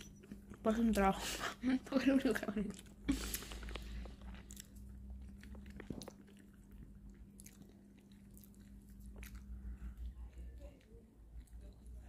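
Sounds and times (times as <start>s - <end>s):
low steady hum: 0.0s - 12.0s
person chewing food: 2.6s - 12.0s.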